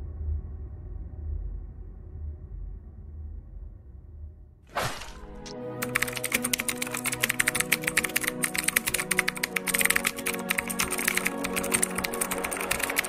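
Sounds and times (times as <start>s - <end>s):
background music with held tones: 5.1s - 13.0s
keyboard clicks: 5.3s - 13.0s.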